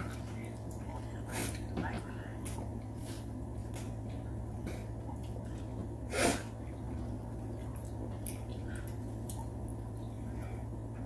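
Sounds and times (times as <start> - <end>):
low hum: 0.0 - 11.0
person sniffing: 6.1 - 6.5.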